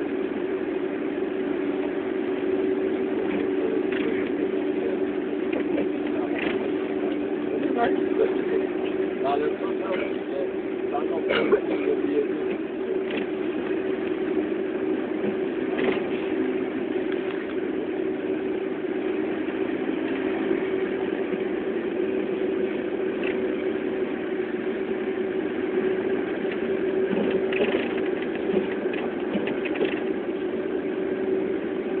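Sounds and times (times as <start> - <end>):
vehicle running noise from inside: 0.0 - 32.0
faint rattles: 26.3 - 30.2.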